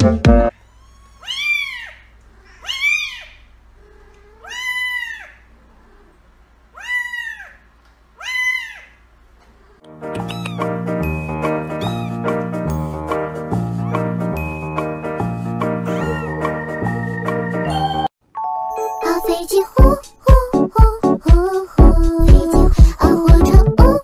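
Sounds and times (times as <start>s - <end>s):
background music: 0.0s - 0.5s, 9.9s - 24.0s
kitten meowing: 0.6s - 3.5s, 4.2s - 5.4s, 6.8s - 7.6s, 8.2s - 9.0s, 10.2s - 10.8s, 11.7s - 12.4s, 15.8s - 16.5s.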